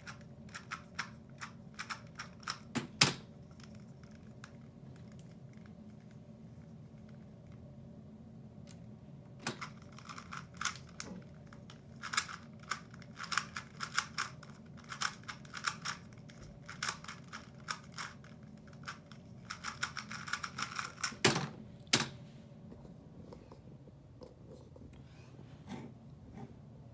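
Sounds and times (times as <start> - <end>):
plastic cube clicking: 12.0 - 16.0.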